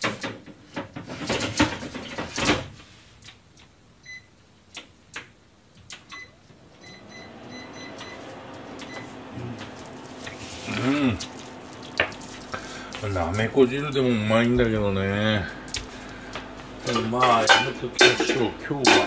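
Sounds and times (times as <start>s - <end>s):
appliance button beeps: 4.0s - 4.3s, 5.9s - 9.2s
cookware clattering: 16.8s - 19.0s.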